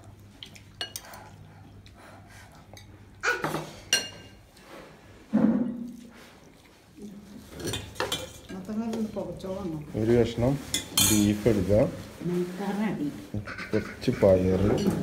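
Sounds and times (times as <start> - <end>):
metal ladle clinking on dishes: 10.7 - 11.3.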